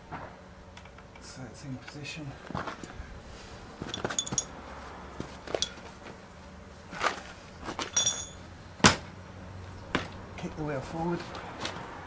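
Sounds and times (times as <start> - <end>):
metal tools clinking: 3.8 - 4.6, 5.4 - 6.0, 7.8 - 8.4
boot kicking tyre: 9.9 - 10.2.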